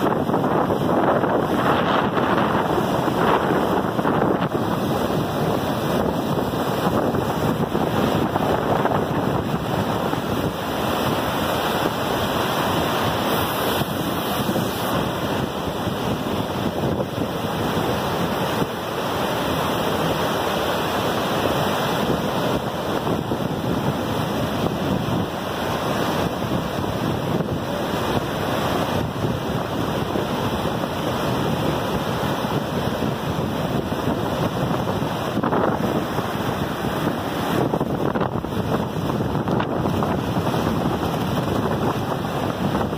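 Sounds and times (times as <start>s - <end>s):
river roaring over rapids: 0.0s - 42.9s.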